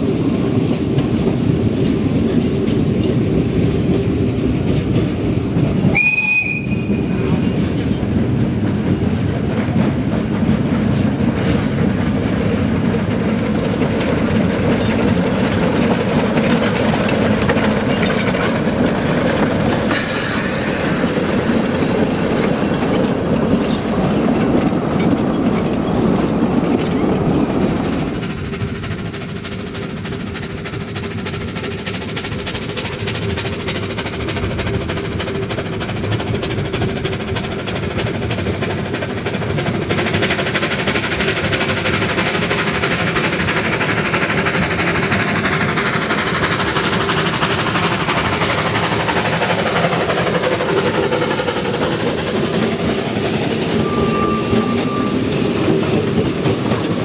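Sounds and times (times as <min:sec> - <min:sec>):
steam train running past: 0:00.0 - 0:57.0
steam whistle blast: 0:05.9 - 0:07.1, 0:53.7 - 0:55.4.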